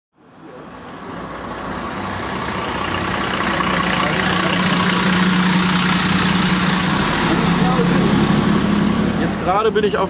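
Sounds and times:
low engine drone: 0:02.8 - 0:10.0.

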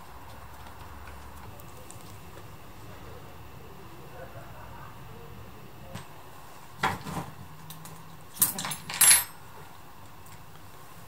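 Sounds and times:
metal tools clinking and clattering: 0:08.4 - 0:09.4.

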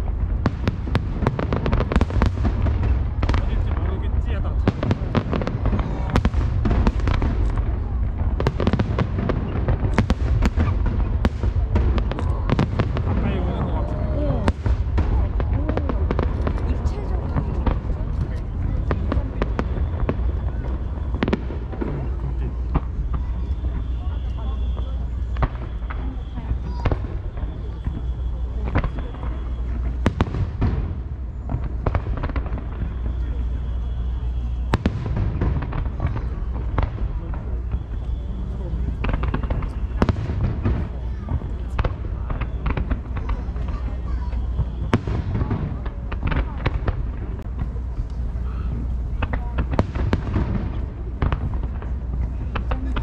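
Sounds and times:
fireworks bursting: 0:00.0 - 0:53.0
steady low rumble: 0:00.0 - 0:53.0.

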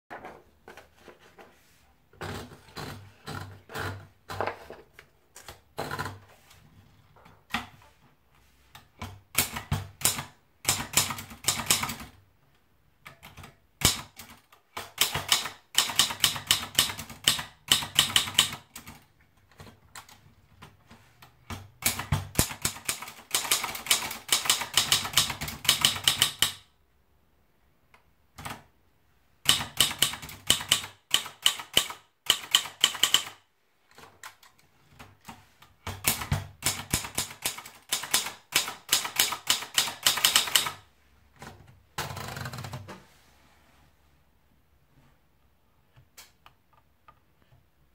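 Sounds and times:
typewriter keys striking: 0:21.8 - 0:26.6, 0:29.5 - 0:33.4, 0:35.9 - 0:40.8.

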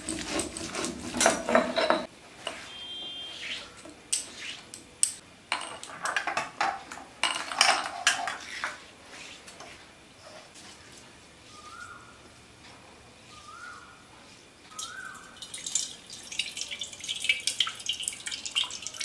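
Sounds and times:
metal utensils and dishes clinking: 0:00.0 - 0:02.1, 0:05.1 - 0:08.8.

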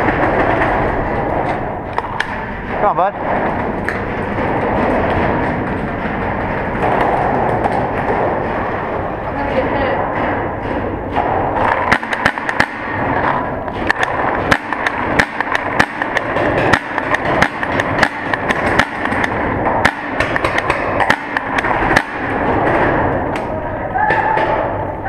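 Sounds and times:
paintballs striking cover: 0:11.2 - 0:23.5
paintball markers firing: 0:11.6 - 0:22.4.

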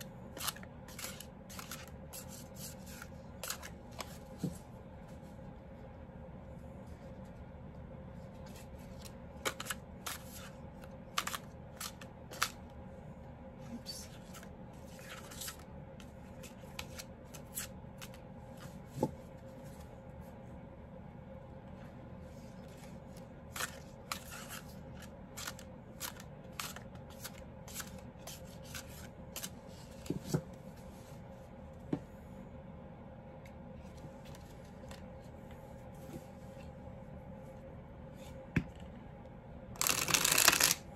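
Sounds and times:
faint hum: 0:00.0 - 0:40.9
cards being shuffled: 0:00.4 - 0:04.5, 0:08.4 - 0:12.7, 0:14.0 - 0:15.7, 0:16.3 - 0:18.8, 0:22.6 - 0:30.4, 0:39.8 - 0:40.9.

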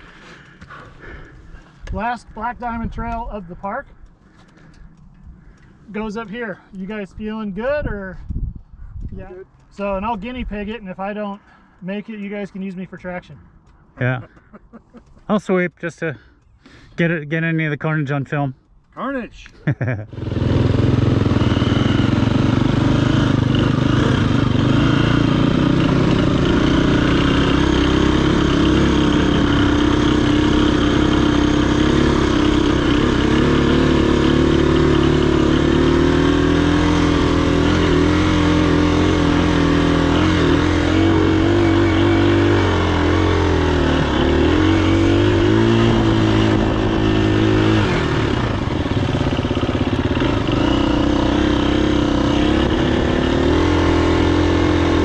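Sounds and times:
dirt bike engine revving: 0:19.7 - 0:55.0.

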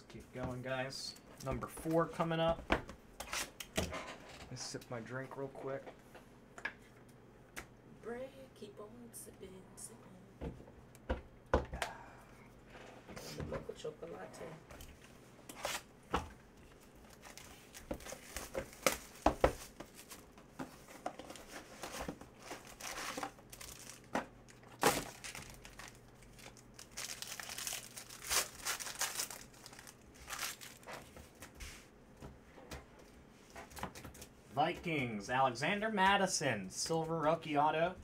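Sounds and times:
foil wrappers crinkling and tearing: 0:17.0 - 0:20.3, 0:22.4 - 0:31.4.

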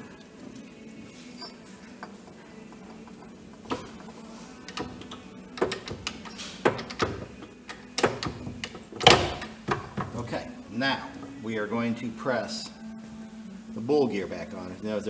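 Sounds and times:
metallic clicks and knocks: 0:02.7 - 0:10.3.

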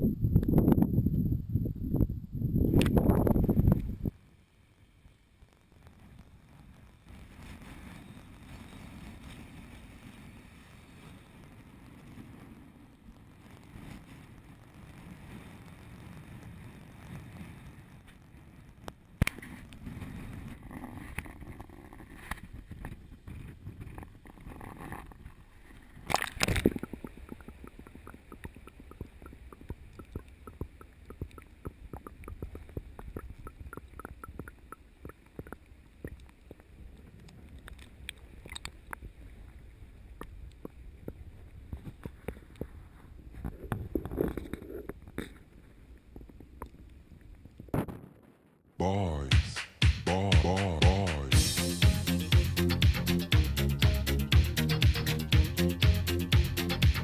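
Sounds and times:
wind and surf rumble: 0:00.0 - 0:05.3, 0:05.9 - 0:44.6
underwater crackle: 0:02.7 - 0:48.6.

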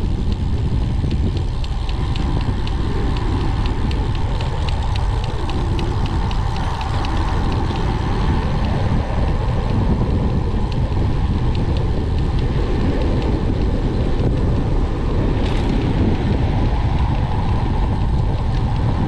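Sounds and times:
deep rumble: 0:00.0 - 0:19.0
wind buffeting microphone: 0:00.0 - 0:19.0.

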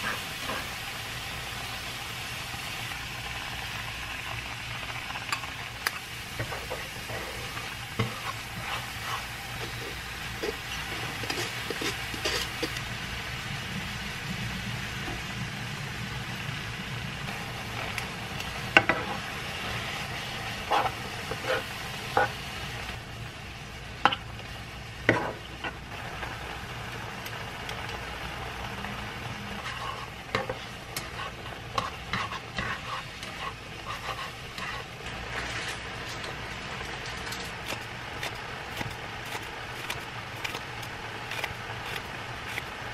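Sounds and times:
food sizzling in frying pan: 0:00.0 - 0:42.9
utensils clicking on pan: 0:05.3 - 0:12.8, 0:29.7 - 0:34.9.

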